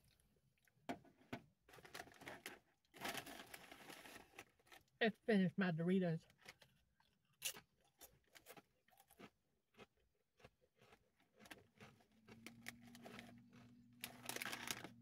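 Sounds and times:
plastic bag crinkling: 1.7 - 4.9, 12.7 - 15.0
tortilla chips crunching: 6.4 - 15.0.

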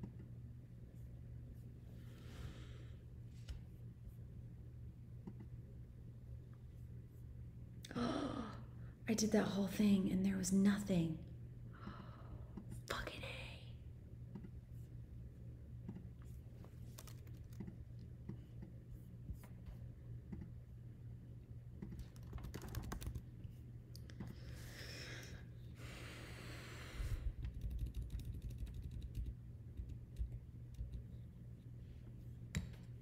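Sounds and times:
typing on computer keyboard: 21.8 - 23.2, 27.4 - 31.0
breathy hiss: 24.5 - 27.3.

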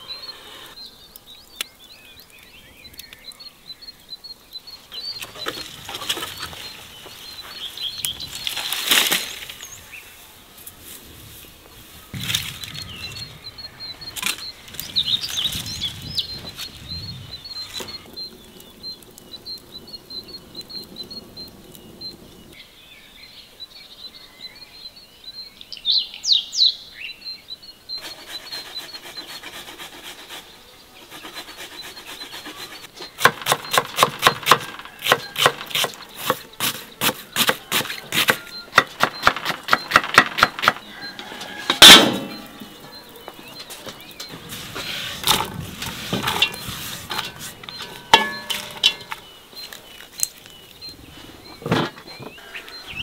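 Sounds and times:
birds chirping: 0.0 - 53.0.

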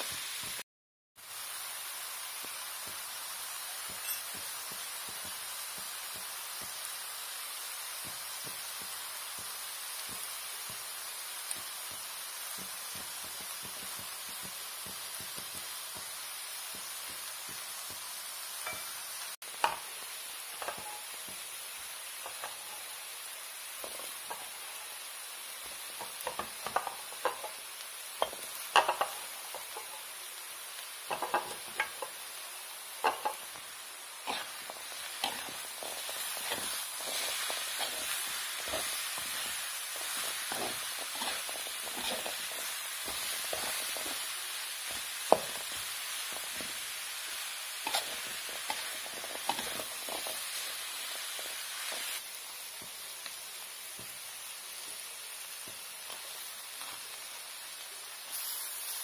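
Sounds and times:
food sizzling in a pan: 0.0 - 59.0
spatula scraping and knocking pan: 20.6 - 21.4, 25.7 - 27.6, 28.2 - 30.1, 31.1 - 32.2, 33.0 - 33.6, 34.2 - 46.8, 47.8 - 50.7.

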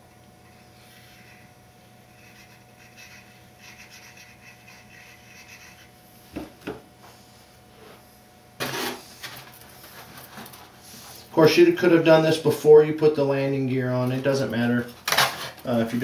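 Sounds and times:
faint room hum: 0.0 - 16.0.

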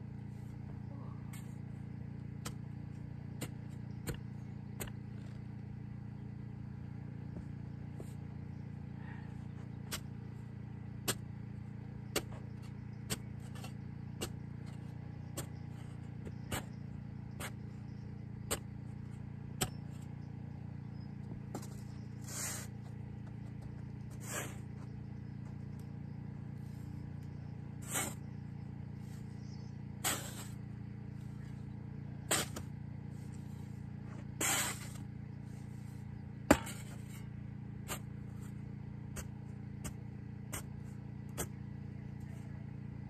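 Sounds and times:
low hum: 0.0 - 43.0
shovel striking sandy soil: 1.3 - 5.6, 9.5 - 20.3, 21.2 - 25.8, 26.6 - 42.4
shovel scraping through sand: 12.1 - 17.8, 21.6 - 22.9, 24.0 - 25.0, 27.6 - 31.6, 32.2 - 41.6.

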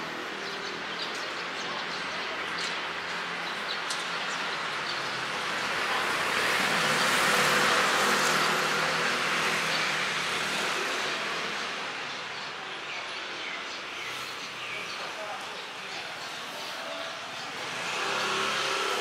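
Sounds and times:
vehicle passing by: 17.5 - 19.0.

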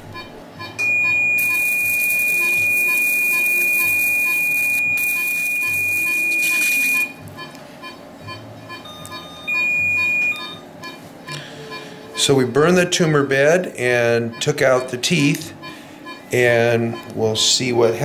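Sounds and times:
high electrosurgical tone: 0.0 - 7.2, 8.3 - 11.0
short electronic tone: 0.1 - 7.2, 8.9 - 10.6.

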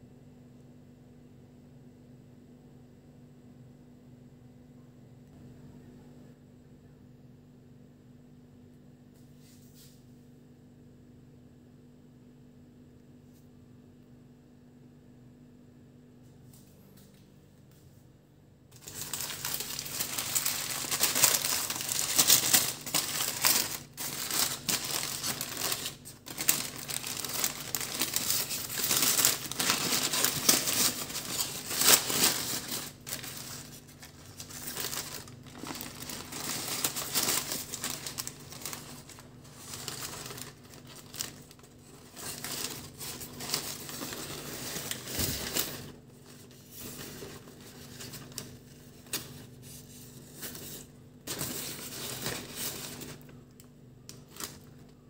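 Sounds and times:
paper wrapper crinkling: 18.7 - 55.0.

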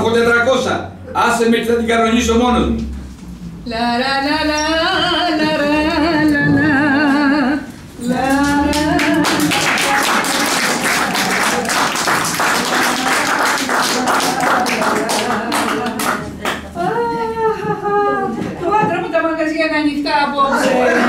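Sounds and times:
woman singing with vibrato: 3.6 - 11.4, 12.6 - 19.1
audience applauding: 8.3 - 16.8.

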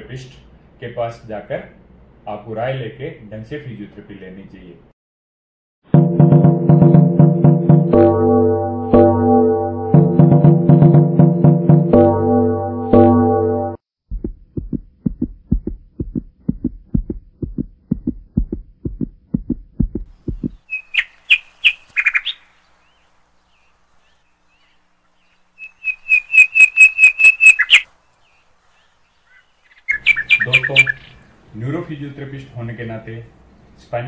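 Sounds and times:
low thuds: 14.1 - 20.7
high bird-like chirping: 20.3 - 22.5, 25.6 - 27.9, 29.3 - 31.3.

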